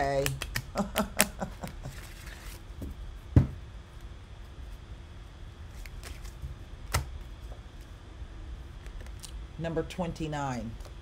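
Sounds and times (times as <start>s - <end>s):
cards rustling being shuffled: 1.7s - 2.7s, 5.7s - 7.0s.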